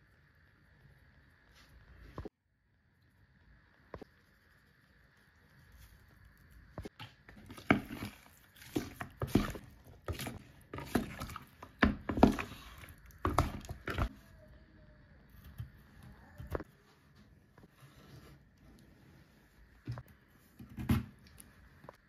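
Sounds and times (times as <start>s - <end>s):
wooden spoon knocking plastic jug: 7.3s - 14.1s.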